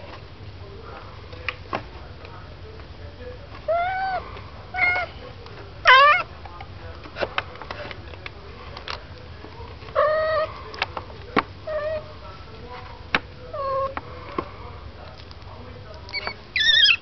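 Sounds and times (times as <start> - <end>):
kittens play-fighting: 0.0 - 17.0
cat meowing: 3.7 - 4.2, 4.8 - 5.1, 5.8 - 6.3, 10.0 - 10.5.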